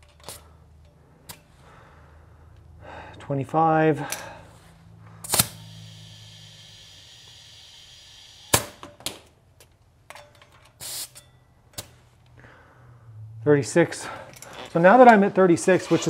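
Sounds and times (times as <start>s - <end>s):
compressed air hissing: 5.2s - 8.8s, 10.8s - 11.2s.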